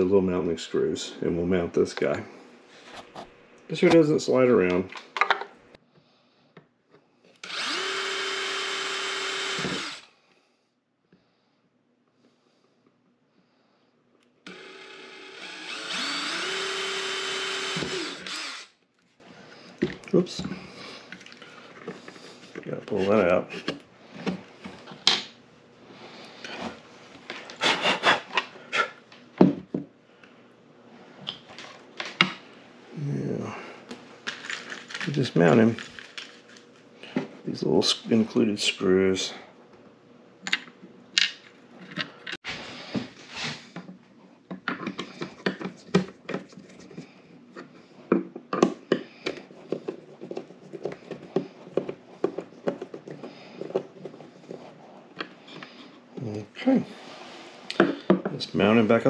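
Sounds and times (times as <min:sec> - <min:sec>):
drill press boring plastic: 0:07.4 - 0:10.1, 0:14.5 - 0:18.8.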